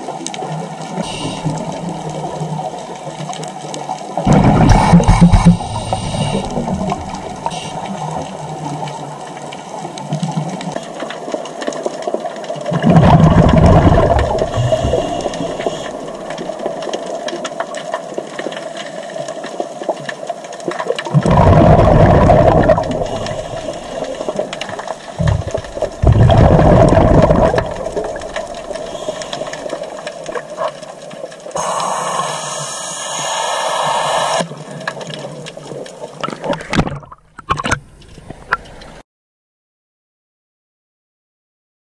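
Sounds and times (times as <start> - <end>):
exhaled bubbles rushing underwater: 0.0 - 17.8, 20.8 - 37.2
steady regulator hiss: 1.0 - 1.8, 4.6 - 8.1, 14.5 - 16.2, 23.0 - 24.5, 28.7 - 30.0, 31.6 - 34.5
thin high hiss: 31.6 - 34.4.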